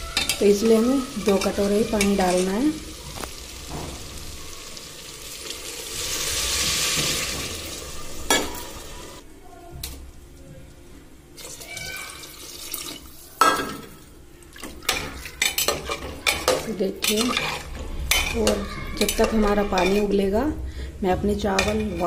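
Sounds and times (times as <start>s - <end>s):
water splashing into hot pot: 3.1s - 9.0s, 11.4s - 13.6s.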